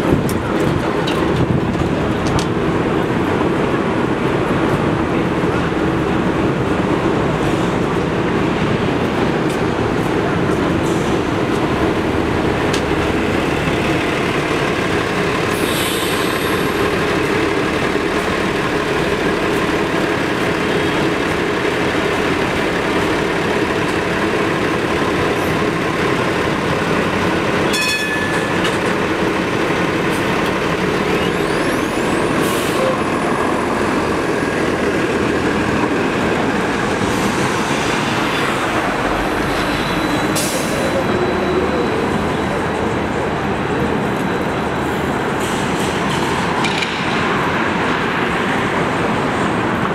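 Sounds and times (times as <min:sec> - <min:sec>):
city traffic: 0:00.0 - 0:49.9
streetcar running: 0:00.0 - 0:49.9
bell ding: 0:27.7 - 0:28.5.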